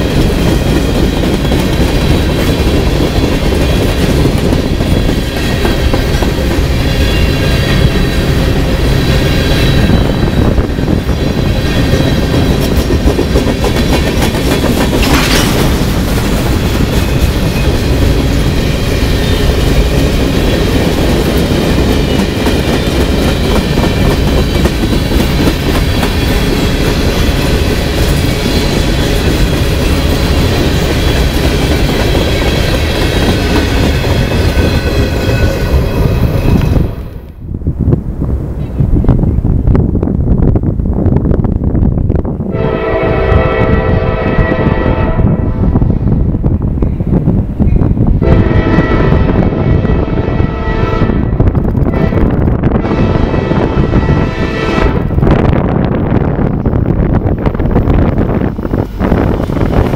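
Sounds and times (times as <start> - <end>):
train wheels clickety-clack: 0.0 - 37.2, 51.1 - 52.7.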